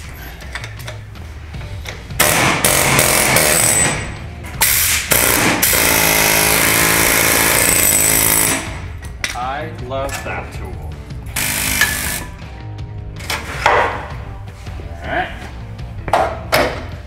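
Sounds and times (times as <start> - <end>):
pneumatic impact tool hammering: 2.2 - 8.8, 11.3 - 12.3.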